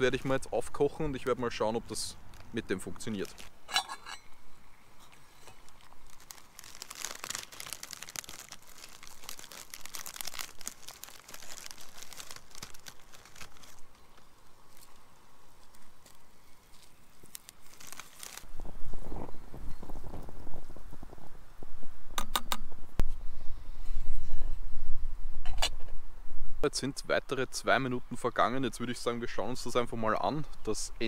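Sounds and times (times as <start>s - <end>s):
water crackling and sizzling on stove: 2.3s - 22.0s.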